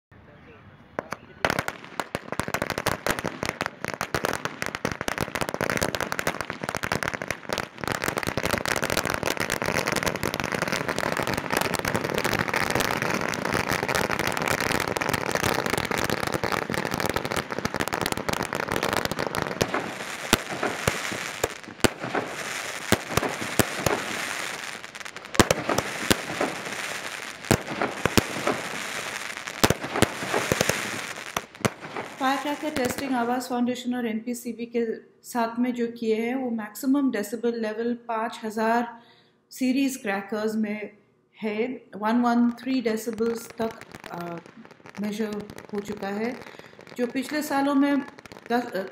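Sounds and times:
firecrackers exploding: 1.0 - 33.5, 42.6 - 48.9.

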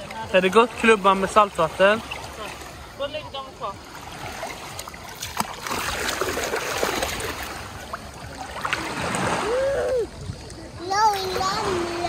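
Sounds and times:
sea water splashing: 0.0 - 12.0
child's voice: 10.8 - 12.0.

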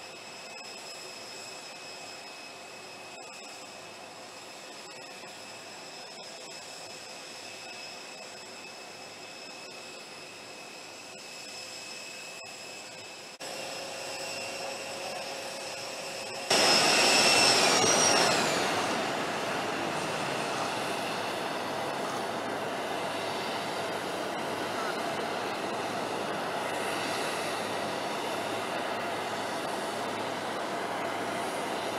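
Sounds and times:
jet turbine whine: 0.0 - 31.9
steady jet rushing noise: 16.0 - 28.6.

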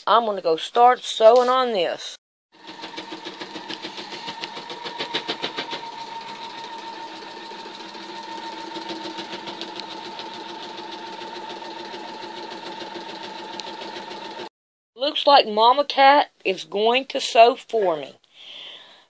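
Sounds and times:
sewing machine running: 2.6 - 14.5.

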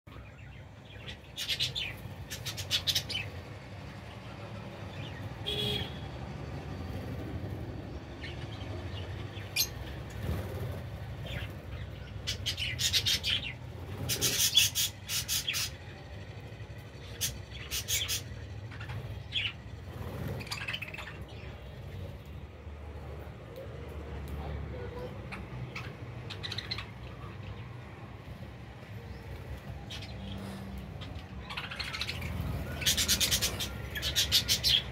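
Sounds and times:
budgies chirping and chattering: 0.1 - 3.4, 8.2 - 16.0, 17.0 - 22.0, 24.4 - 27.6, 29.1 - 34.9.

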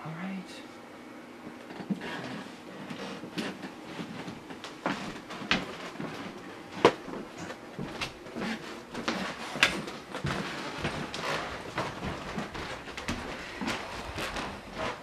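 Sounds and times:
footsteps on wooden floor: 1.7 - 15.0.

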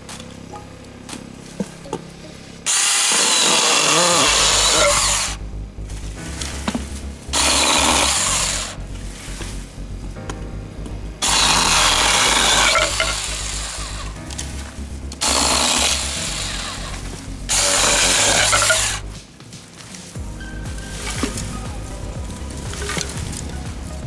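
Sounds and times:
background music: 0.0 - 24.0
chainsaw cutting bamboo: 2.6 - 5.4, 6.2 - 8.9, 11.2 - 19.2.

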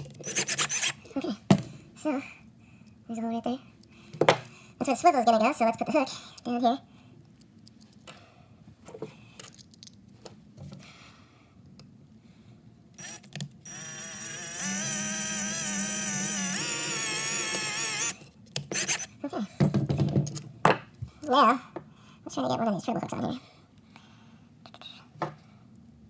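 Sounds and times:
cordless drill drilling metal: 0.2 - 1.0, 13.0 - 19.1.

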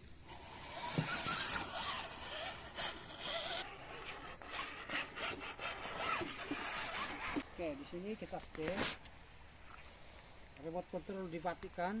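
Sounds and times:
electric motor and gears whirring: 0.0 - 7.4.

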